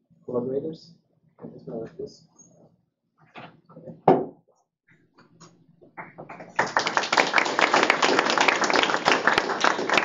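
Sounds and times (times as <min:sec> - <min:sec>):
audience clapping: 0:06.0 - 0:10.0.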